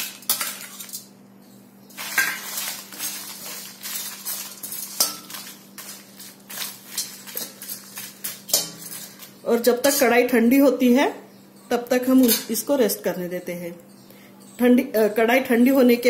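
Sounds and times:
dry spices being stirred: 0.0s - 10.6s
metal spoon scraping metal pan: 1.9s - 10.1s, 12.2s - 12.6s.

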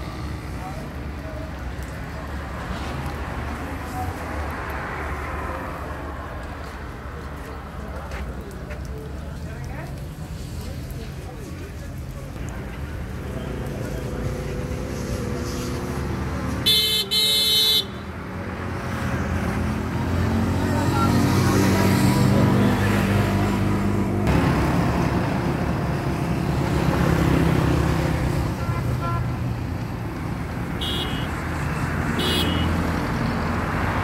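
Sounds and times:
vehicle horn beeping: 16.7s - 18.1s, 28.6s - 29.3s, 30.8s - 31.4s, 32.2s - 32.8s.

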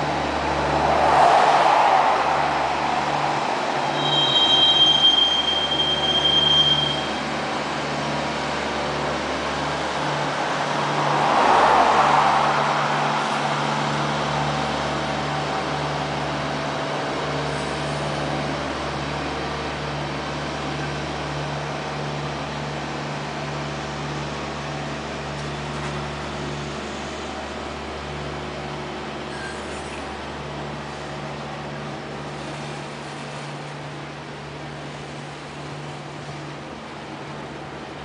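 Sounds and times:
freight train rolling past: 0.0s - 19.2s.

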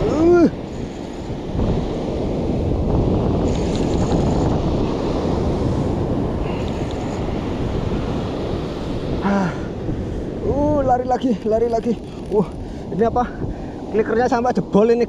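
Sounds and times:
surf breaking on shore: 0.0s - 14.8s
wind buffeting microphone: 0.0s - 15.0s
grunt-like voice: 9.2s - 9.7s.

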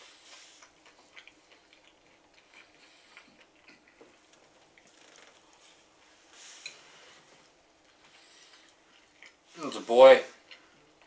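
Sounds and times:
chewing rice: 0.0s - 6.0s, 7.8s - 9.6s, 10.3s - 11.0s.

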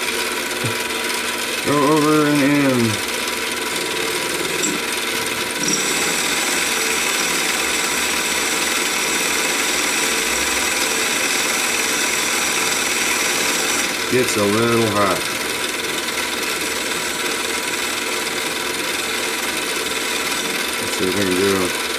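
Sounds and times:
lathe cutting steel: 0.4s - 21.9s
thin high whine: 1.7s - 9.2s.

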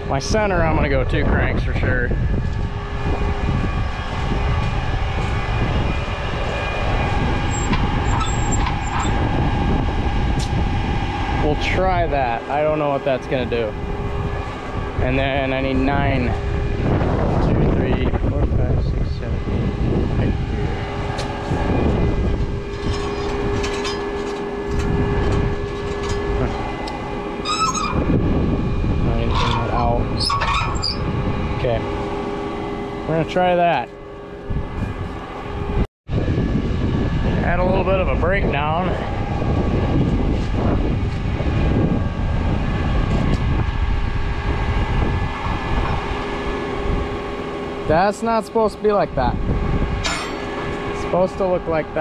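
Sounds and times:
high whine: 0.0s - 52.0s
crank clicks and squeaks: 7.4s - 9.2s, 22.7s - 28.1s, 29.2s - 31.1s.

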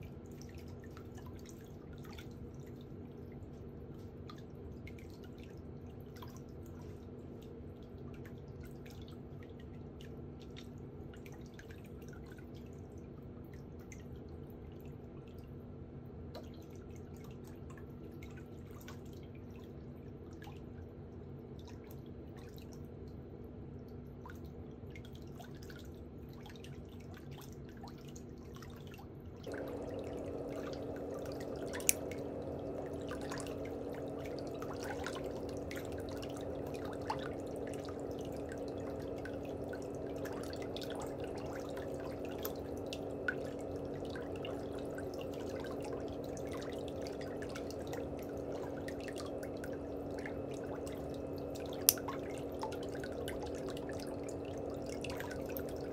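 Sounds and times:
trickling water and drips: 0.0s - 15.6s, 16.3s - 55.9s.

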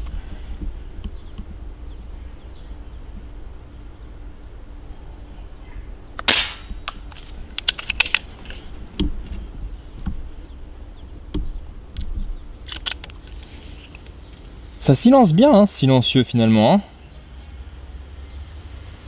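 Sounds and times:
suppressed air rifle shot: 6.2s - 6.8s
small clicks: 11.9s - 14.4s.

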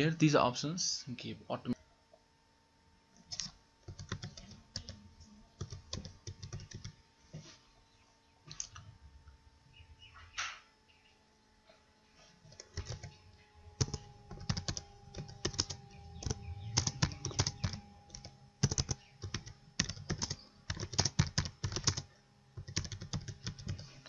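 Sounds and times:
typing on keyboard: 3.3s - 5.0s, 5.6s - 7.0s, 12.5s - 13.2s, 13.8s - 23.8s.

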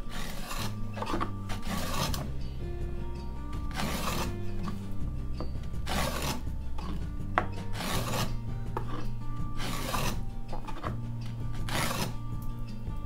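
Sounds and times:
hand plane rasping on wood: 0.0s - 2.4s, 3.7s - 4.8s, 5.8s - 11.0s, 11.6s - 12.2s
background music: 0.0s - 13.0s.

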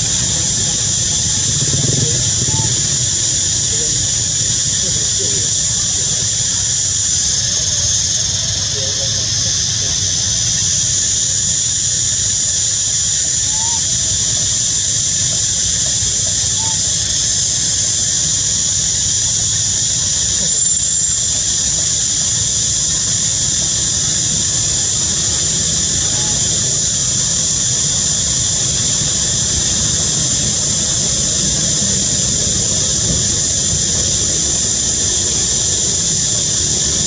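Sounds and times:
low rumble: 0.0s - 6.7s
insects droning in chorus: 0.0s - 37.0s.

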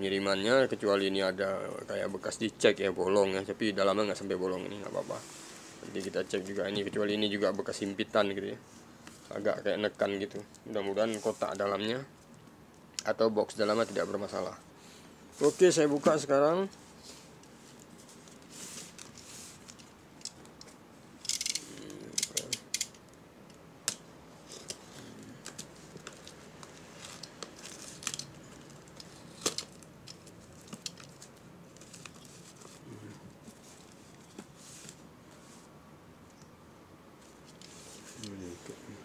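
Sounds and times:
plastic crinkling: 24.5s - 35.0s.

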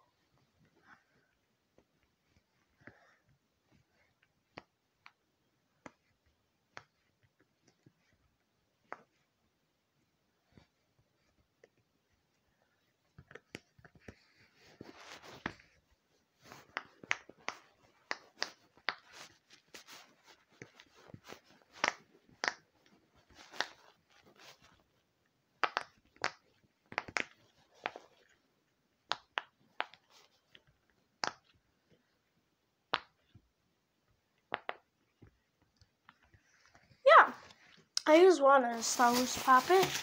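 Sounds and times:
handling rustle: 38.5s - 40.0s.

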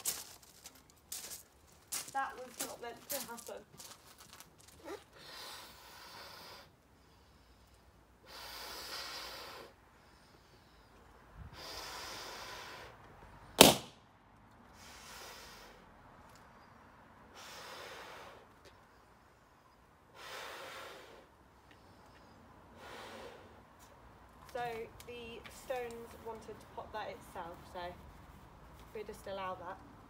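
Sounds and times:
breath blowing into balloon: 8.2s - 9.8s, 11.4s - 13.0s
balloon popping: 13.6s - 14.0s.

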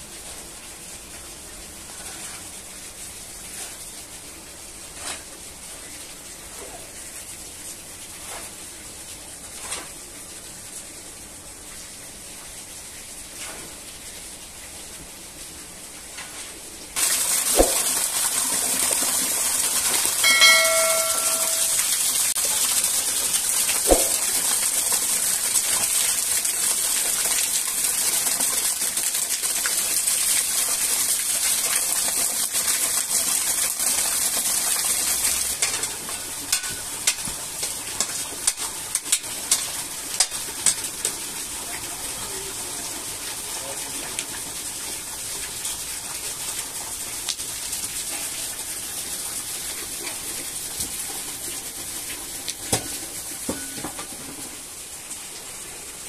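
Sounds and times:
loud steady hissing: 13.9s - 28.2s.

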